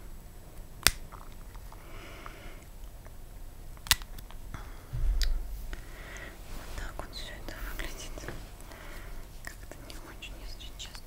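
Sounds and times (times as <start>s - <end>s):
dull low thump: 4.9s - 5.9s.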